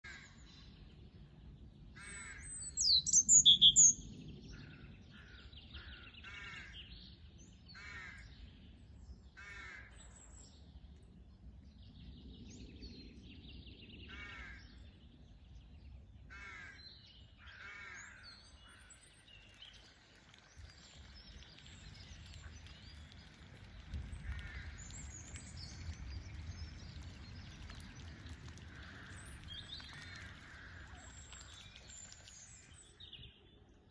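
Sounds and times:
birds chirping: 2.1 - 7.2, 16.5 - 33.9.

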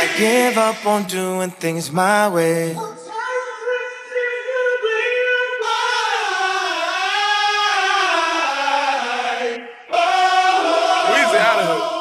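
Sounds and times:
person singing a cappella: 0.0 - 12.0.

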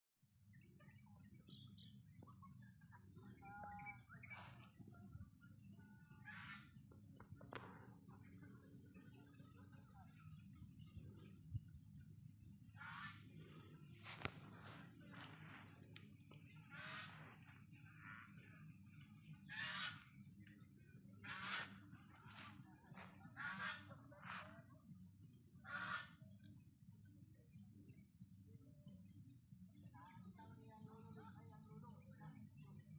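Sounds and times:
high insect drone: 0.2 - 32.9
short bird calls: 19.5 - 20.1, 21.2 - 21.8, 23.4 - 24.5.

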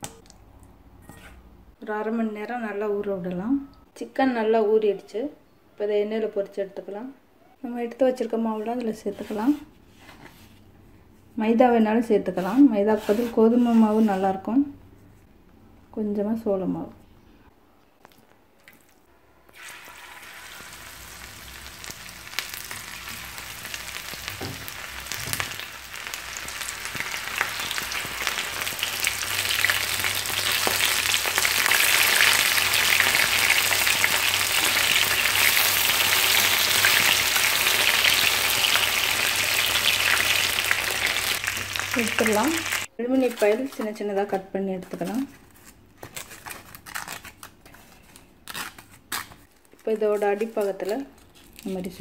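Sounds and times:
chicken frying in hot oil: 19.5 - 42.9.

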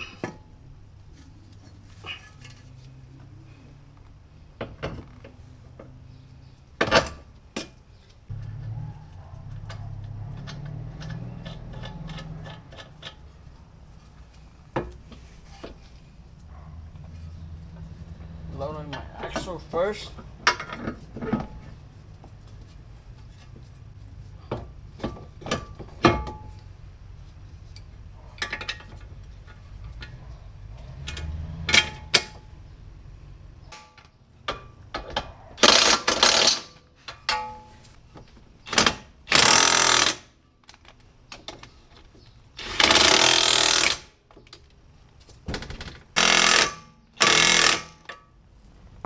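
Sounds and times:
impact wrench hammering: 42.6 - 44.1, 46.2 - 48.2.

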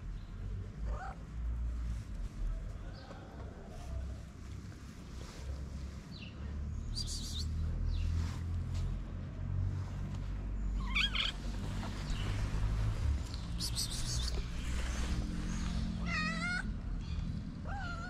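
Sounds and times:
steady low rumble: 4.0 - 18.0
high chirping calls: 6.8 - 8.1, 13.2 - 17.2.

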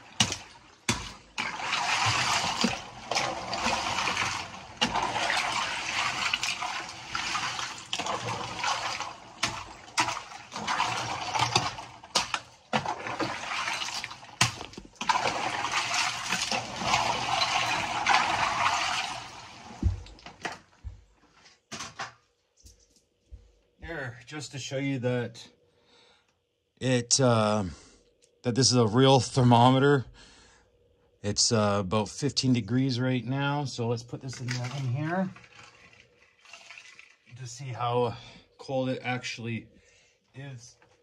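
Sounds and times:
ice water sloshing and splashing: 0.0 - 20.8, 34.2 - 37.7.

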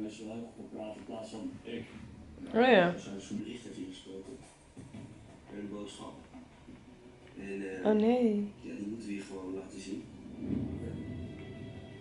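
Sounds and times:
television soundtrack: 0.0 - 12.0.

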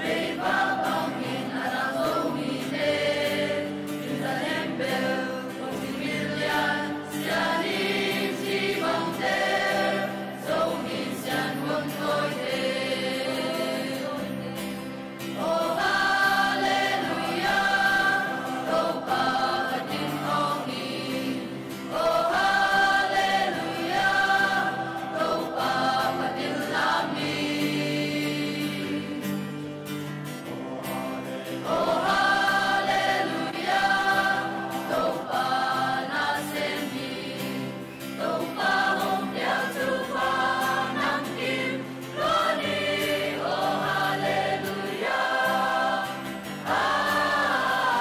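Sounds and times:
choir singing gospel: 0.0 - 48.0.

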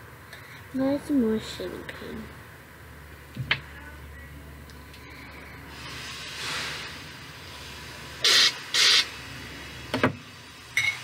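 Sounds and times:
aerosol can spraying: 8.2 - 9.1.

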